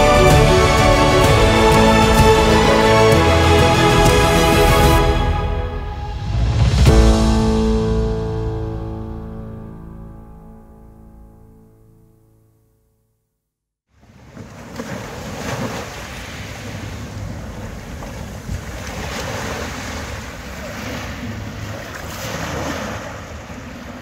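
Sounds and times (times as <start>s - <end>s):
sea waves breaking on shore: 14.0s - 24.0s
wind rumbling on microphone: 16.6s - 24.0s.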